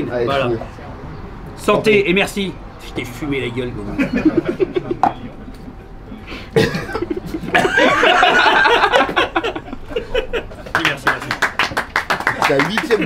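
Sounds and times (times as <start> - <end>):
men laughing: 3.8 - 11.3, 12.2 - 13.0.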